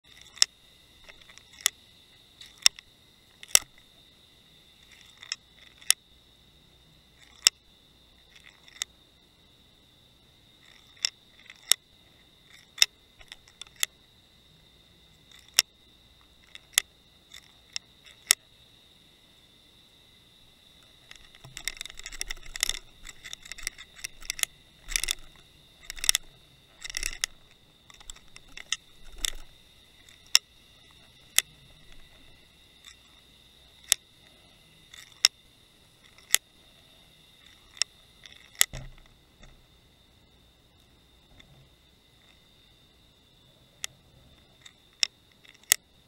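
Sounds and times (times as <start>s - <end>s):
faint high whine: 0.0s - 46.0s
camera rig rattling and clicking: 20.8s - 32.2s.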